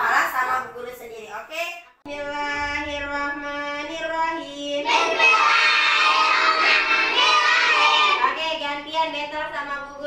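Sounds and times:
young children singing together: 0:04.8 - 0:08.3.

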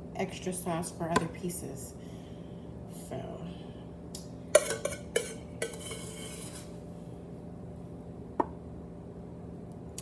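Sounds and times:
utensil scraping dish: 0:04.6 - 0:06.8.

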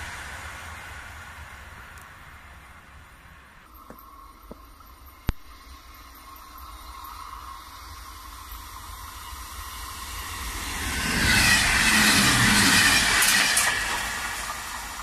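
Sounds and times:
train passing at speed: 0:00.0 - 0:15.0
train wheel clacks: 0:08.6 - 0:15.0.

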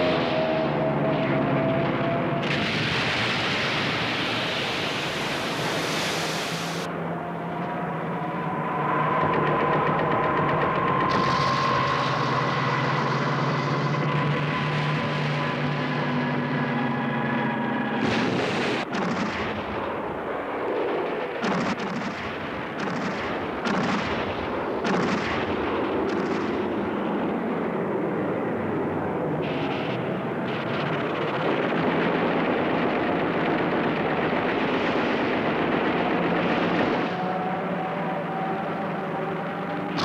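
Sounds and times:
anti-aircraft gunfire barrage: 0:00.0 - 0:06.9, 0:09.2 - 0:40.0
explosions: 0:02.3 - 0:06.9, 0:18.0 - 0:27.4, 0:29.4 - 0:37.2
sharp single gunshots: 0:18.0 - 0:19.8, 0:21.4 - 0:26.7.

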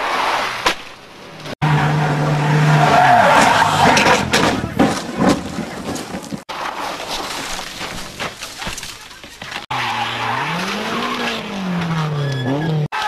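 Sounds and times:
rally car engine revving: 0:01.6 - 0:05.1, 0:09.7 - 0:13.0
car skidding on loose surface: 0:01.6 - 0:08.3, 0:09.6 - 0:13.0.

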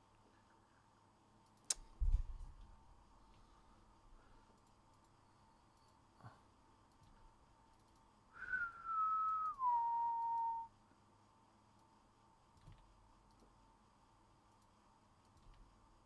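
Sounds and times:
person whistling: 0:08.4 - 0:10.7.

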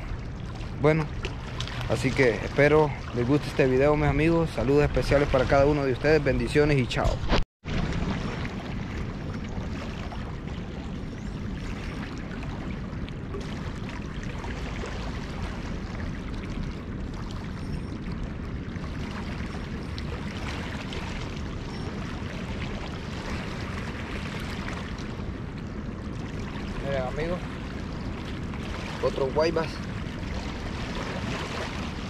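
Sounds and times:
river water rushing: 0:28.6 - 0:32.0.

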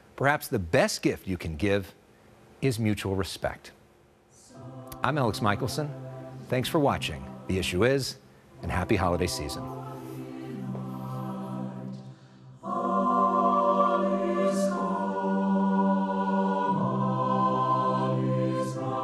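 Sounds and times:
choir singing held chords: 0:04.3 - 0:19.0.

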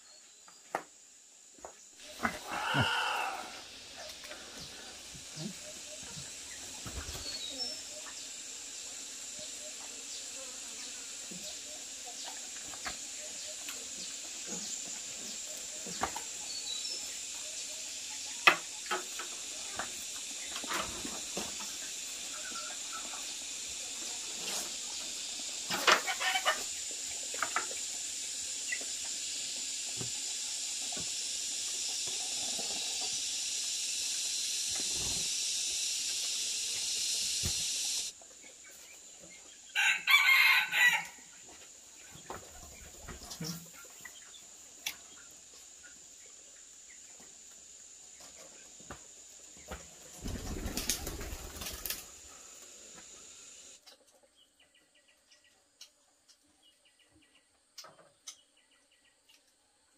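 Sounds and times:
high insect drone: 0:00.0 - 0:53.8
rooster crowing: 0:39.7 - 0:41.3.

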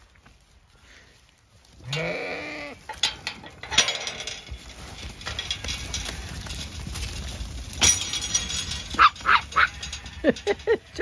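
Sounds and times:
sheep bleating: 0:01.8 - 0:02.9
metal gate clanking: 0:02.9 - 0:11.0.

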